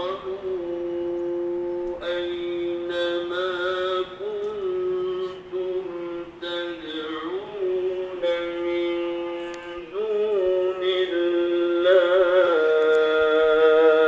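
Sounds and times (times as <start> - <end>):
man chanting recitation: 0.0 - 14.0.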